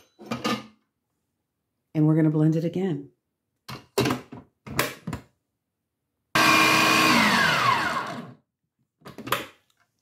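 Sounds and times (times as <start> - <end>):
food processor motor whining: 6.4 - 8.4.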